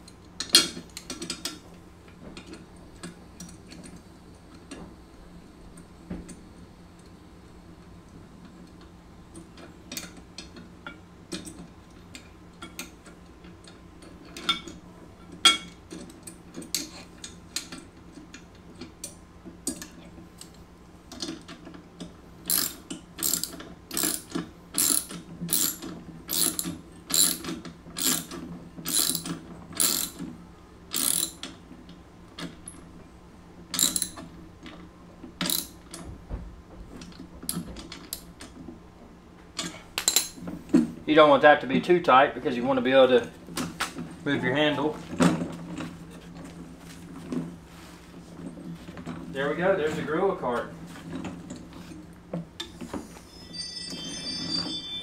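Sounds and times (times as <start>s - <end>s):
ratchet wrench clicking: 22.5s - 30.2s, 30.9s - 31.4s, 33.8s - 34.2s, 35.4s - 35.8s.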